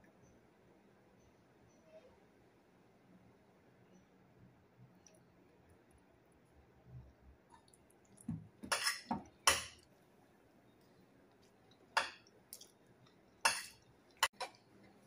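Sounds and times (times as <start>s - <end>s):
metal spoon scraping a plate: 8.7s - 9.6s.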